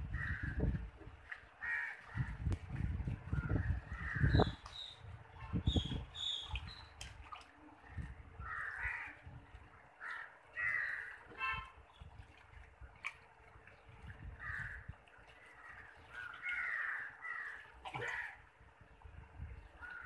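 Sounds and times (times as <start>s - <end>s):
water splashing and sloshing: 0.0s - 20.0s
bird calling: 5.7s - 6.9s.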